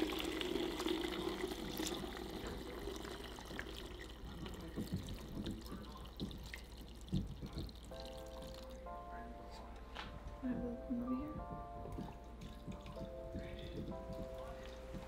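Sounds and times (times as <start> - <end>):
broth pouring and splashing: 0.0 - 8.9.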